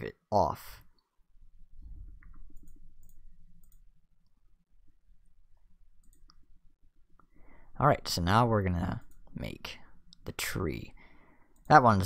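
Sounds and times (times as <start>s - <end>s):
computer mouse clicks: 2.1s - 3.9s, 6.0s - 6.4s.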